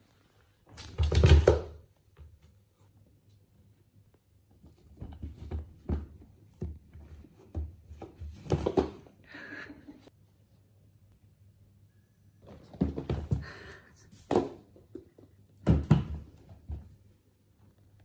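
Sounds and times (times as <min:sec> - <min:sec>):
cats thumping and rustling: 0:12.4 - 0:15.0.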